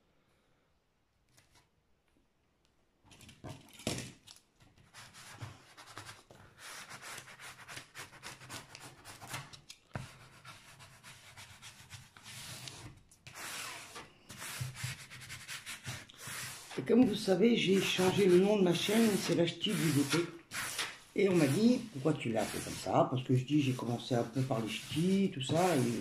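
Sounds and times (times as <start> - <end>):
plastic spatula scraping film: 12.0 - 26.0.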